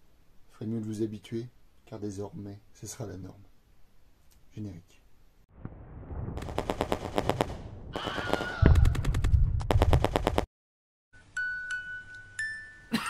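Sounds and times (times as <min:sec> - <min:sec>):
machine-gun fire bursts: 0:06.4 - 0:10.5.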